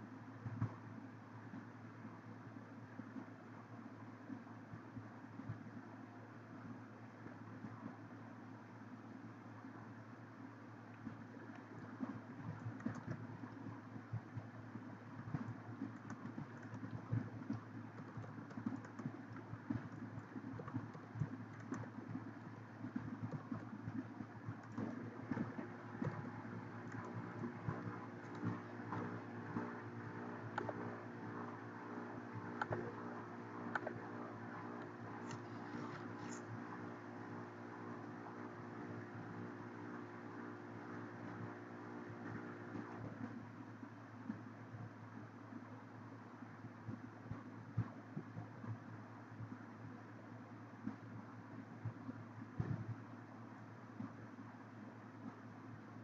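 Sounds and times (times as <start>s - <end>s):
steady low hum: 0.0s - 56.0s
soft hissy ticks: 10.9s - 37.0s
computer mouse clicks: 11.0s - 13.8s, 15.2s - 29.8s, 30.4s - 31.0s, 32.4s - 33.0s, 33.6s - 34.0s, 34.7s - 36.6s
keyboard typing: 12.5s - 13.2s, 15.3s - 22.3s, 23.0s - 29.7s, 32.4s - 33.0s, 33.7s - 36.5s.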